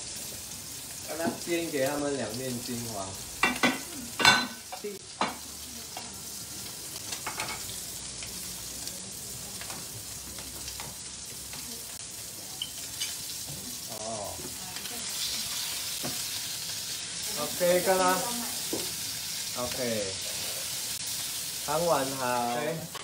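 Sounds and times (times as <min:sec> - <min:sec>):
meat sizzling in oil: 0:00.0 - 0:23.0
spatula stirring food: 0:09.6 - 0:21.6.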